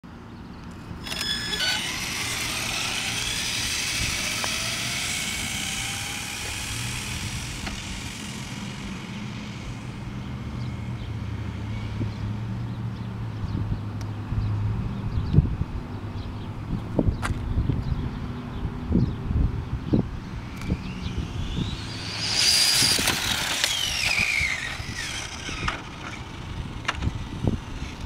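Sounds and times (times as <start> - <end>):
electric motor whine: 0.8 - 12.0, 20.0 - 28.0
tyres hissing on asphalt: 6.0 - 10.1.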